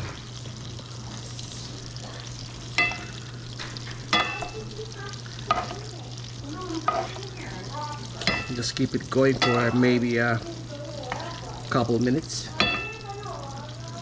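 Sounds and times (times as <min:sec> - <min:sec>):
steak sizzling in a pan: 0:00.0 - 0:14.0
metal utensil clinking on pan: 0:02.8 - 0:03.2, 0:04.1 - 0:04.7, 0:05.5 - 0:05.8, 0:06.8 - 0:07.2, 0:08.2 - 0:10.1, 0:12.6 - 0:13.1.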